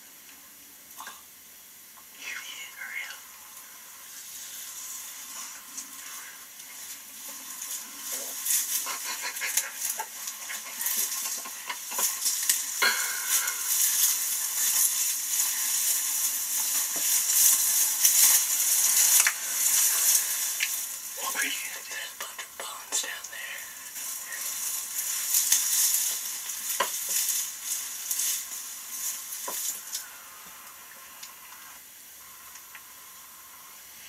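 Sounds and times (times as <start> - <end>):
dry grass rustling and crackling: 2.2 - 34.0
stalks brushing against clothing: 4.2 - 23.2, 23.9 - 30.0.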